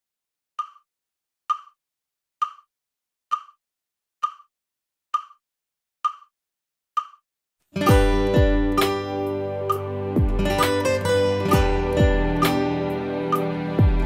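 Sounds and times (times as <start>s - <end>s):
metronome clicks: 0.6s - 0.8s, 1.5s - 1.8s, 2.4s - 2.7s, 3.3s - 3.6s, 4.2s - 4.5s, 5.2s - 5.4s, 6.0s - 6.3s, 7.0s - 7.2s, 7.8s - 13.8s.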